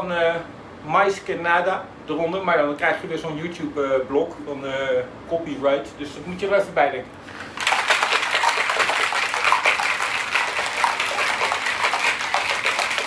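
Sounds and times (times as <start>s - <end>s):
ice rattling in cocktail shaker: 7.6s - 13.0s.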